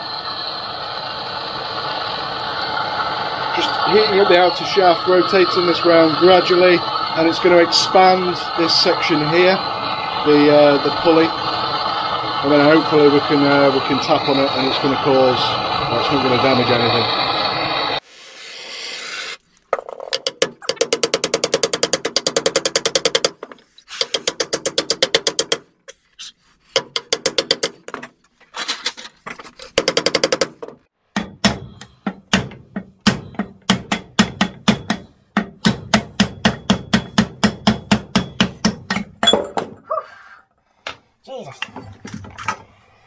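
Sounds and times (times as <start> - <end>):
mallet hammering on metal spindle: 26.8 - 27.8, 31.1 - 39.2.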